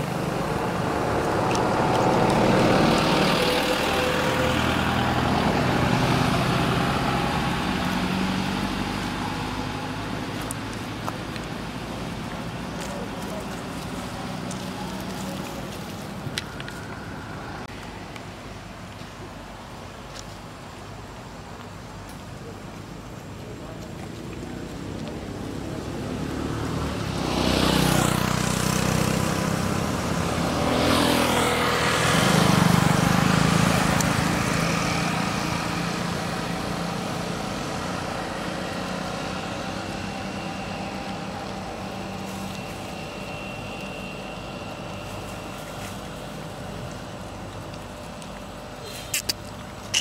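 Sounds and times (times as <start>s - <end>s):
motor vehicle passing: 0.0s - 17.6s.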